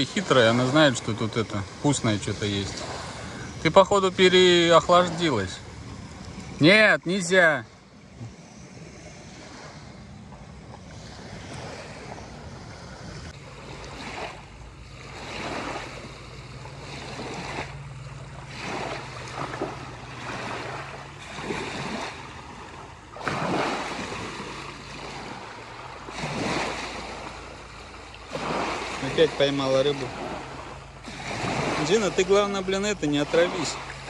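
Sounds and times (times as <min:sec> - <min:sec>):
water splashing: 0:00.0 - 0:34.0
steady low hum: 0:00.9 - 0:23.2
wind noise on microphone: 0:08.0 - 0:17.8.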